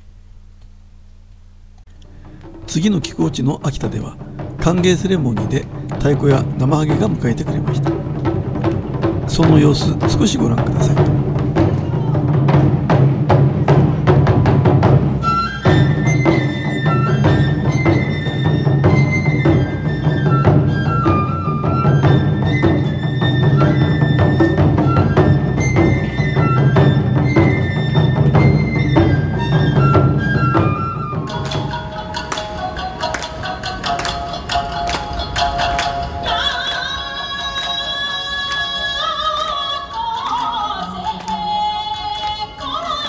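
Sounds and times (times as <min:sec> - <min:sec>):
drums beating fast rhythm: 0:02.1 - 0:37.8
high flute melody: 0:14.3 - 0:43.0.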